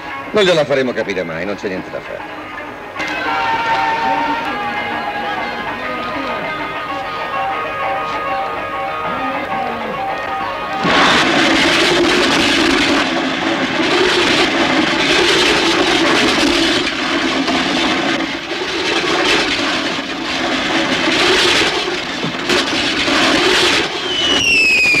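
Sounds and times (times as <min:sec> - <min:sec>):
fairground ride rushing roar: 0:00.0 - 0:25.0.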